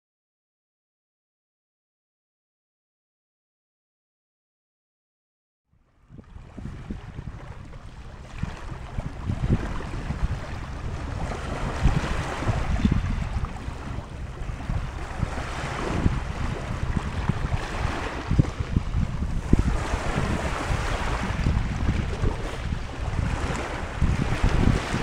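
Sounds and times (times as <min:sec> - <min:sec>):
wind buffeting microphone: 0:06.0 - 0:25.0.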